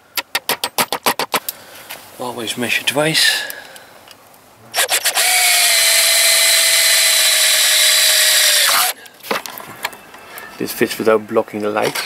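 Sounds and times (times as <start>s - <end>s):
electric drill boring through metal: 4.8s - 9.0s.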